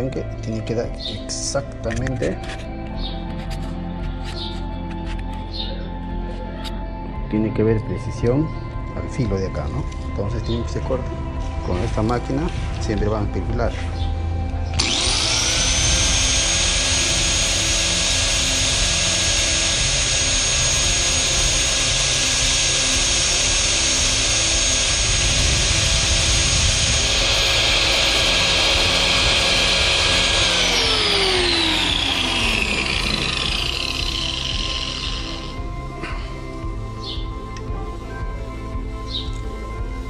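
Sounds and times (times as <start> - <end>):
angle grinder whining: 9.1 - 37.7
plastic being ground: 14.8 - 35.5.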